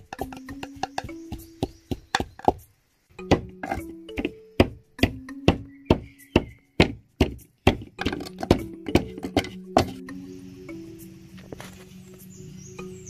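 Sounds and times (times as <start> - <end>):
stone pestle pounding in mortar: 0.0 - 2.6, 3.2 - 10.0
soft background music: 0.0 - 13.0.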